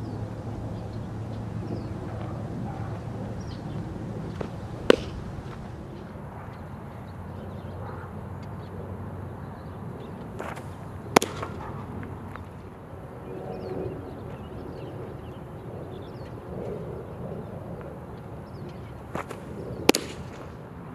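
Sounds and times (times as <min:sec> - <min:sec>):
outdoor background noise: 0:00.0 - 0:20.9
baseball smacking into mitt: 0:04.2 - 0:05.8, 0:10.4 - 0:11.8, 0:19.1 - 0:20.5.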